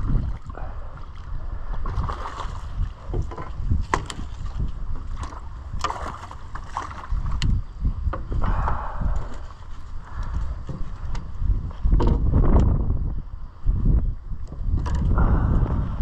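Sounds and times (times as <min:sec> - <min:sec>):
wind buffeting microphone: 0:00.0 - 0:16.0
fish splashing in water: 0:01.8 - 0:02.9.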